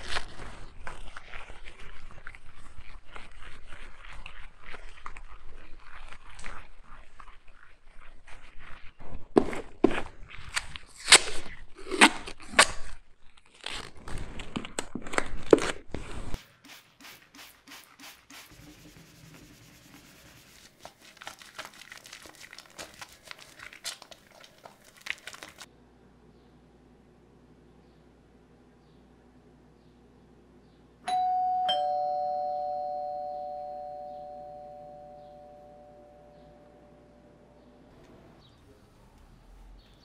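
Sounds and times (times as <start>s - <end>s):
plastic tape crinkling and ripping: 0.0s - 1.2s, 9.4s - 16.4s, 20.5s - 25.7s
cloth rubbing on wooden tabletop: 16.4s - 21.2s.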